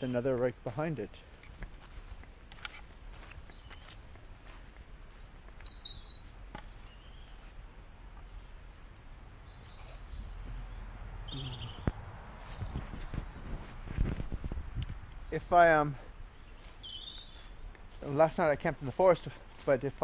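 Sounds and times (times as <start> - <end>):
birds chirping: 0.0 - 7.5, 8.1 - 13.4, 14.4 - 20.0
wind rumble on microphone: 11.3 - 15.3.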